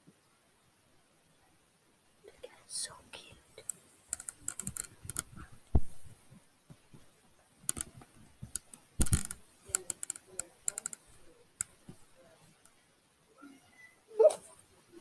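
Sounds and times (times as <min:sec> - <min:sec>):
dull thumps: 0:04.6 - 0:07.1.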